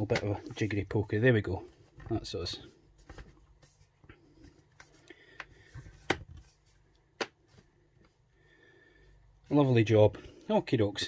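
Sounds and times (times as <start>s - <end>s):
hands handling laptop: 2.9s - 8.2s.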